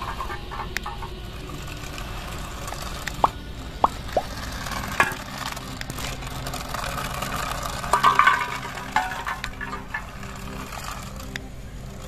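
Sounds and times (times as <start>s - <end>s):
steady low hum: 0.0s - 12.0s
empty cans clinking and clattering: 7.8s - 10.6s.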